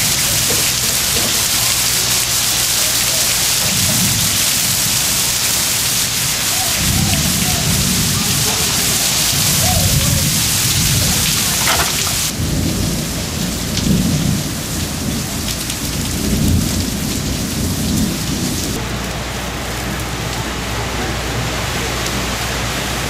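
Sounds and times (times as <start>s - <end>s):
heavy rain: 0.0s - 23.0s
gusting wind buffeting microphone: 3.3s - 18.8s.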